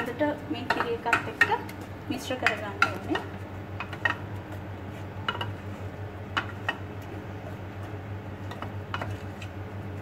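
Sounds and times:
utensil clinking against metal pot: 0.0s - 4.2s
low steady hum: 0.0s - 10.0s.

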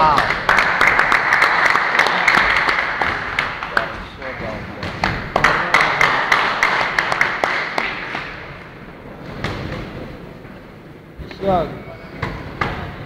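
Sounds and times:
audience applauding in a hall: 0.0s - 8.6s.

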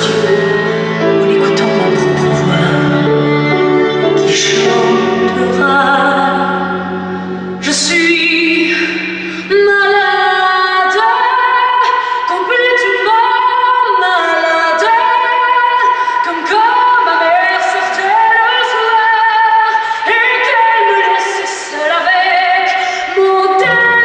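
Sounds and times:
musical accompaniment: 0.0s - 10.0s, 23.5s - 24.0s.

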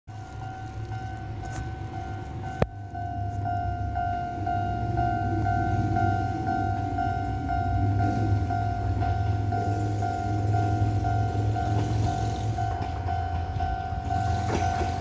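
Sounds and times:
level-crossing bell clanging: 0.1s - 15.0s
train rumble: 0.1s - 15.0s.

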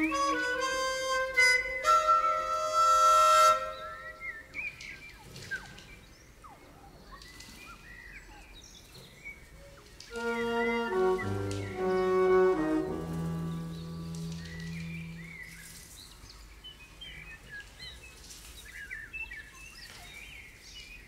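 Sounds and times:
wind instruments sustained notes: 0.0s - 4.5s, 10.1s - 15.9s.

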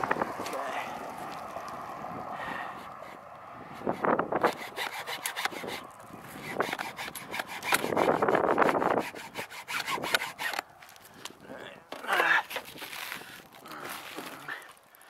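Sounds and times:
hacksaw cutting: 2.8s - 10.7s.

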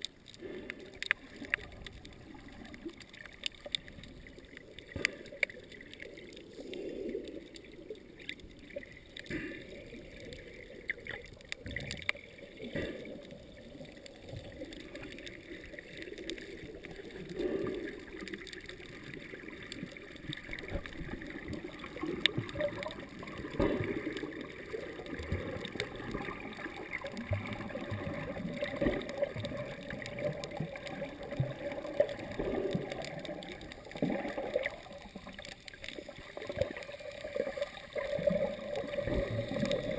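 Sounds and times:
small clicks underwater: 0.0s - 39.9s
underwater water gurgling: 0.0s - 39.9s.

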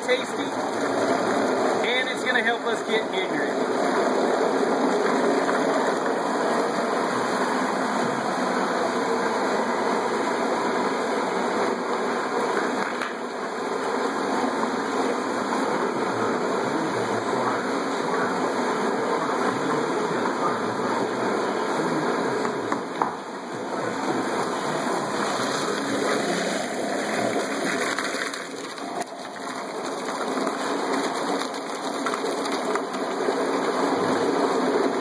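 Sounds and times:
garbage disposal churning ice: 0.0s - 35.0s.

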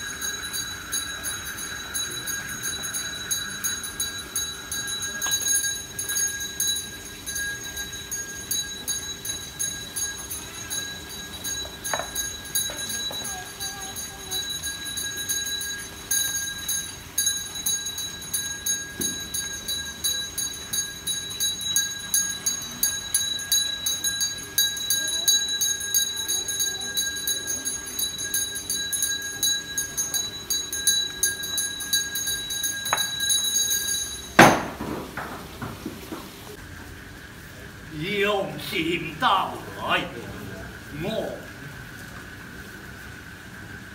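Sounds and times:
hand bell ringing rapidly: 0.0s - 34.7s.

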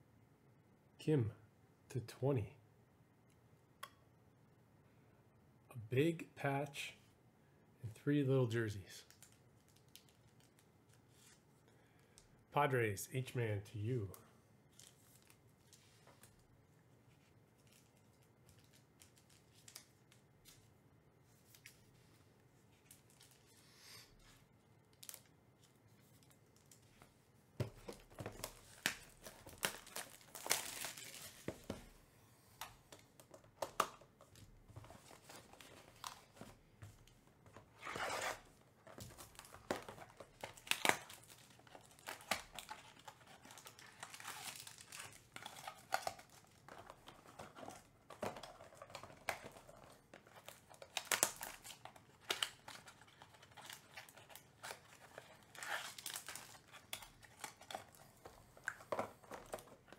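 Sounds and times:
card packs being torn open: 27.9s - 31.5s, 37.8s - 59.9s
foil wrappers crinkling: 27.9s - 31.5s, 38.9s - 58.0s.

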